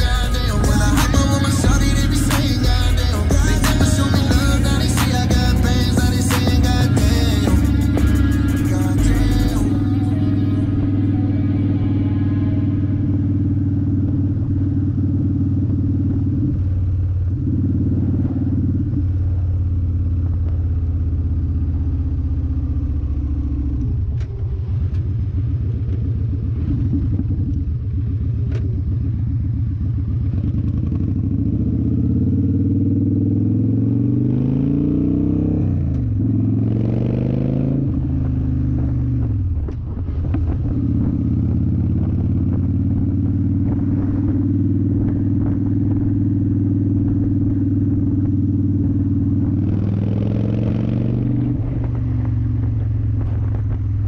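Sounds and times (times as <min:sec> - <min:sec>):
motorcycle engine rumbling and revving: 0:00.0 - 0:54.0.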